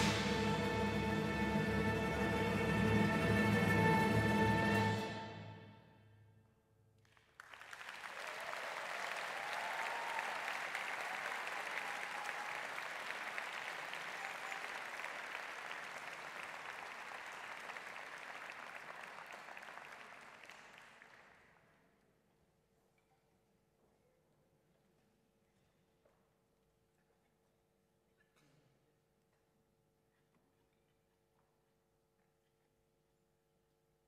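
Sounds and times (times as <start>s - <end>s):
audience applauding: 7.1s - 21.5s.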